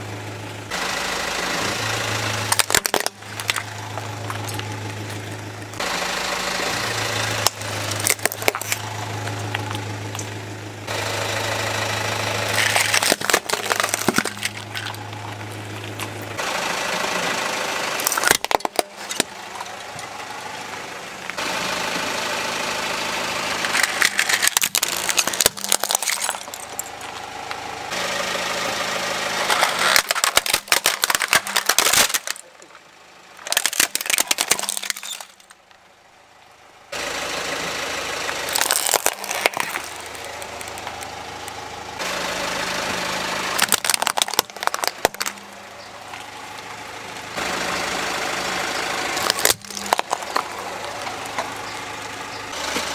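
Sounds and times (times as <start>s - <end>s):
car engine idling: 0.0s - 52.9s
plastic cracking and snapping: 2.5s - 3.7s, 7.4s - 8.8s, 12.5s - 16.1s, 18.0s - 19.7s, 23.6s - 27.2s, 29.4s - 32.5s, 33.4s - 35.8s, 38.4s - 41.1s, 43.6s - 45.4s, 49.2s - 50.6s.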